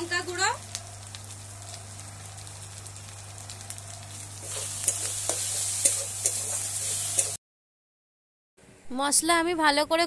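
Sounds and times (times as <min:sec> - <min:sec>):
onions sizzling in oil: 0:00.0 - 0:07.4
spatula scraping a pan: 0:04.4 - 0:07.4.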